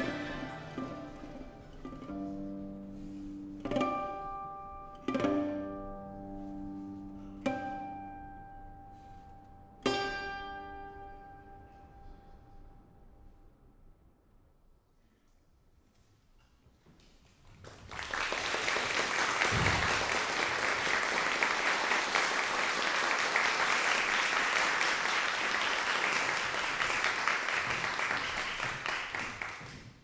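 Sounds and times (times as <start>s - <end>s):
audience applauding: 0.0s - 1.3s, 17.4s - 30.0s.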